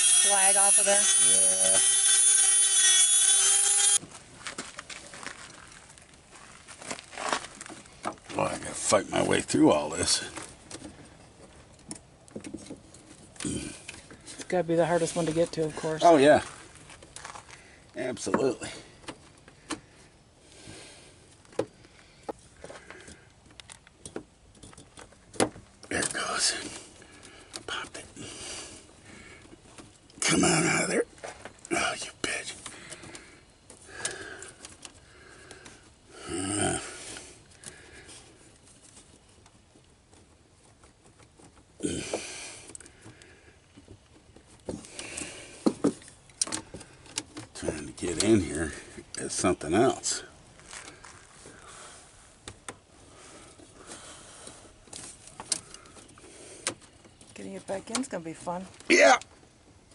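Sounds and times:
faint rustling: 4.0s - 18.0s, 37.0s - 59.9s
small clicks and knocks: 21.4s - 26.2s, 42.7s - 48.4s.

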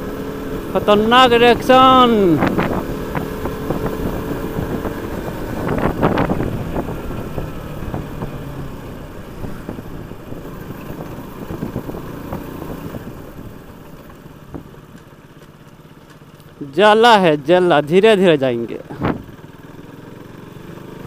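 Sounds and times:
motorcycle engine running: 0.0s - 21.0s
wind on microphone: 1.5s - 13.6s.

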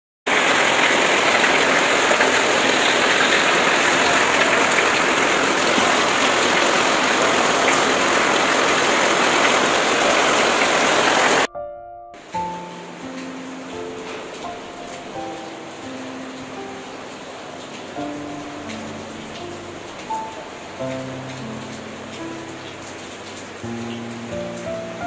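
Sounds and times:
heavy rain on a metal roof: 0.3s - 11.5s, 12.2s - 25.0s
soft music: 3.8s - 10.0s, 11.5s - 25.0s.

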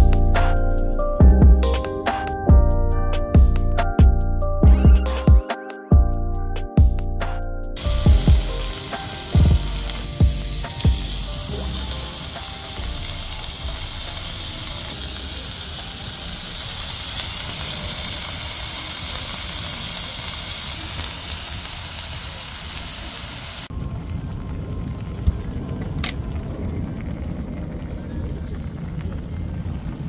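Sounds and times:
skewers sizzling in a frying pan: 7.8s - 23.7s.

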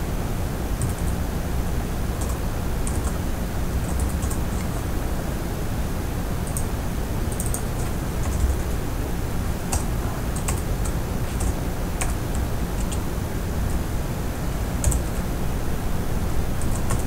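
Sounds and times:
steady low hum: 0.0s - 17.0s
computer keyboard typing: 0.8s - 1.2s, 2.2s - 3.2s, 3.8s - 4.8s, 6.4s - 6.7s, 7.3s - 8.8s, 9.7s - 13.0s, 14.8s - 15.3s, 16.6s - 17.0s.

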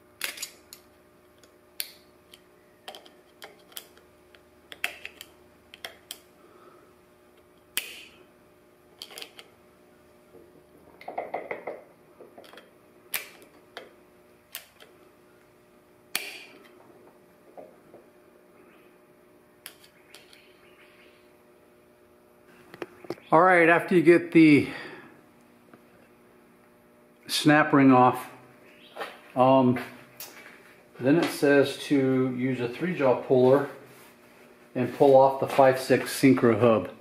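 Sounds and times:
metal parts clicking and clinking: 0.2s - 0.8s.

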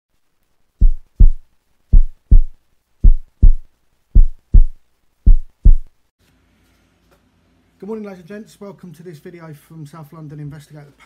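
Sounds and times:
heartbeat double thumps: 0.8s - 5.9s.

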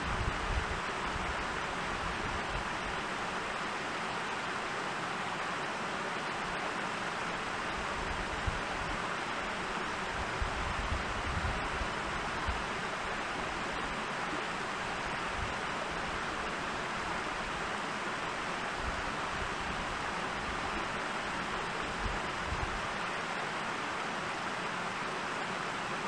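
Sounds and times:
wind rumble on microphone: 0.0s - 3.0s, 7.7s - 9.0s, 9.6s - 13.9s, 21.7s - 22.9s
steady outdoor hiss: 0.0s - 26.0s.

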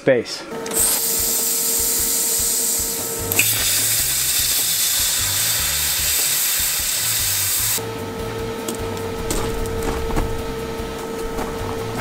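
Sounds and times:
plasma cutter hissing: 0.7s - 7.8s.

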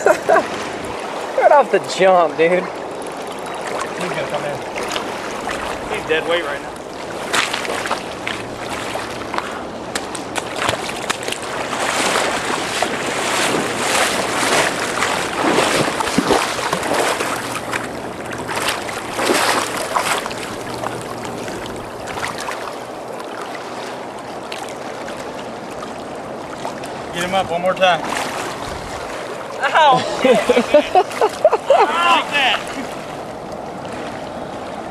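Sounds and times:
churning river water: 0.0s - 34.9s
wind buffeting microphone: 27.4s - 29.4s.

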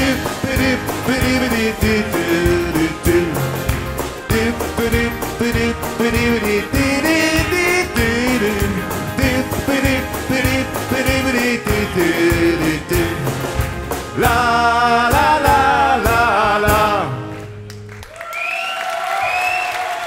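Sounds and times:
lead singer singing: 0.0s - 17.3s
live rock band playing: 0.0s - 17.6s
audience applause: 17.2s - 20.0s.

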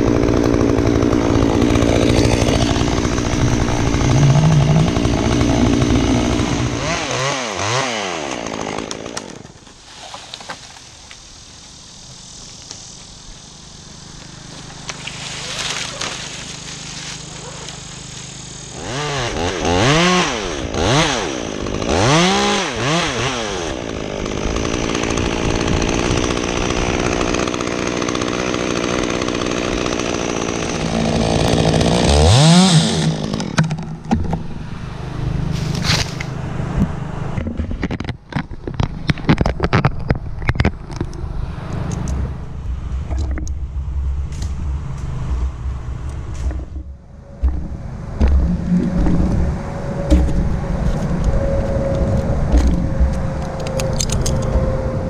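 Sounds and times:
chainsaw revving and cutting wood: 0.0s - 37.5s.

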